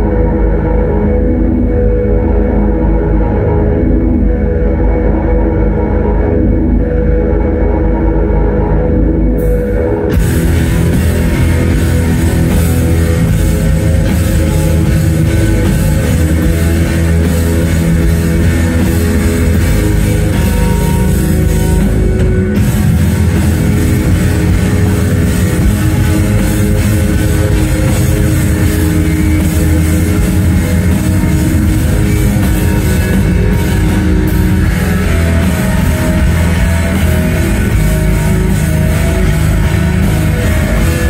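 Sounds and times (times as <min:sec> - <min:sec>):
electric guitars: 0:00.0 - 0:41.0
drum kit: 0:09.4 - 0:41.0.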